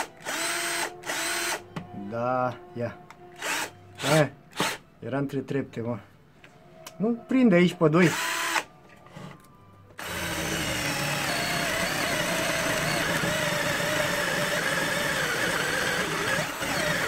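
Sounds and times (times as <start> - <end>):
cordless drill boring into wood: 0.0 - 1.6, 3.4 - 4.8, 8.1 - 8.7, 10.0 - 17.0.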